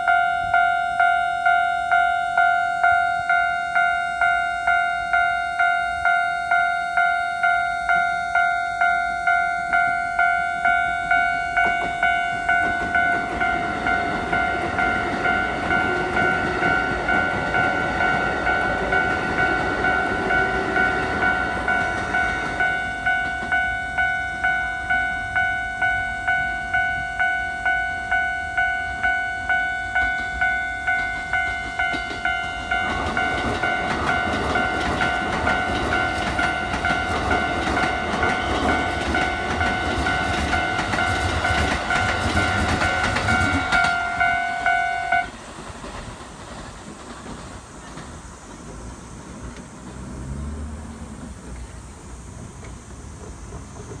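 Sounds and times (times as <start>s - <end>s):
level crossing bell ringing: 0.0s - 45.4s
train clattering over rail joints: 10.6s - 25.8s, 29.0s - 54.0s.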